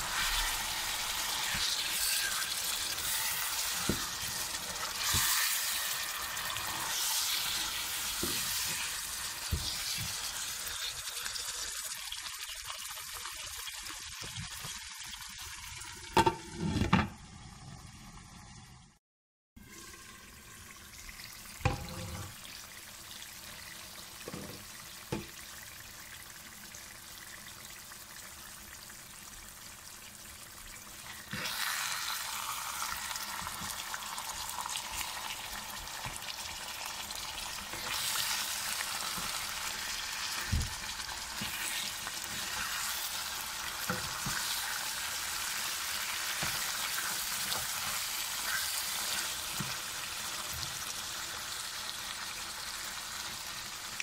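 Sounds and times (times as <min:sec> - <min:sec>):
curry sizzling in a pan: 0:00.0 - 0:18.8, 0:19.6 - 0:54.0
spatula stirring: 0:37.5 - 0:49.8.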